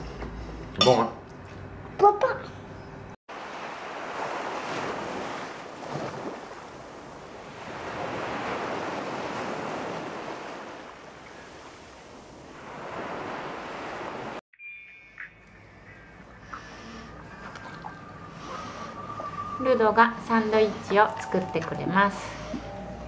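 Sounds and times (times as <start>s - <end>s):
small waves washing up beach: 3.3s - 14.4s.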